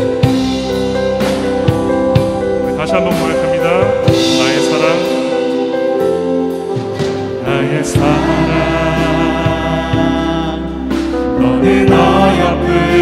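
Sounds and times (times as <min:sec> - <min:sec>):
instrumental accompaniment: 0:00.0 - 0:13.0
group singing gospel: 0:06.5 - 0:13.0.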